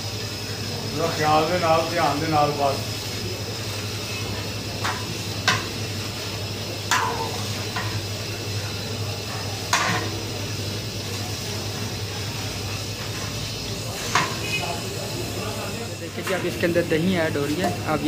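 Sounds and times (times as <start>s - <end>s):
frying hiss: 0.0s - 18.0s
metal spatula clanking on pot: 4.8s - 5.8s, 6.9s - 8.1s, 9.7s - 10.2s, 14.0s - 14.6s, 16.1s - 16.6s.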